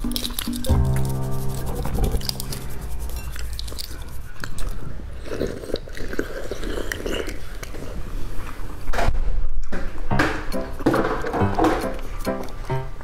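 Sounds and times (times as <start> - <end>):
eggshell crackling: 0.0 - 4.8
biting sucking and chewing: 0.0 - 8.5.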